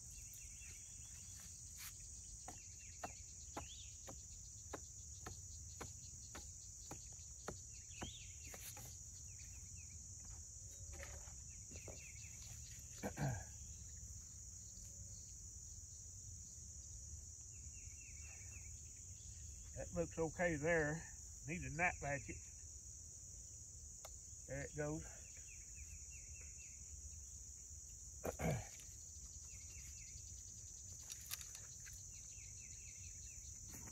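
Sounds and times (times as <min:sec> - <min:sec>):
bird chirps: 0:00.0 - 0:10.4, 0:11.0 - 0:15.4, 0:28.4 - 0:33.9
insect chorus: 0:00.0 - 0:33.9
hand tools tapping hard ground: 0:02.4 - 0:08.9.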